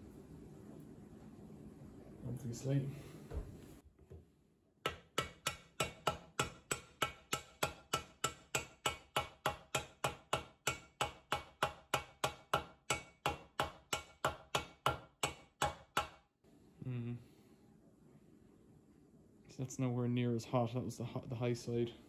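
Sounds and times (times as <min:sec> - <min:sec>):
mallet tapping on metal bearing: 0:04.9 - 0:16.2.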